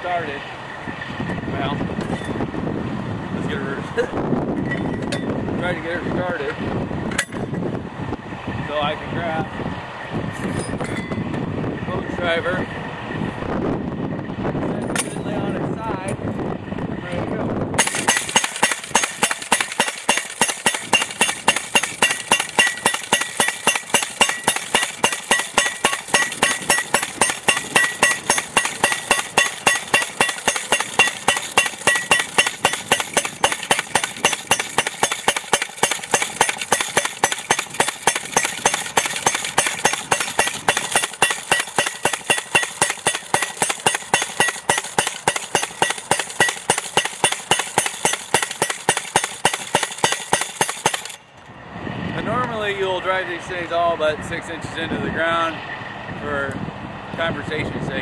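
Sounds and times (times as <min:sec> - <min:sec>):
post driver hammering metal post: 0:07.1 - 0:07.6, 0:14.9 - 0:15.4, 0:17.8 - 0:51.2.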